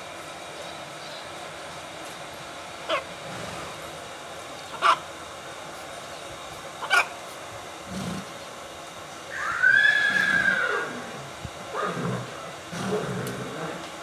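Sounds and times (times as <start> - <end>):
horse whinnying: 9.4 - 11.2.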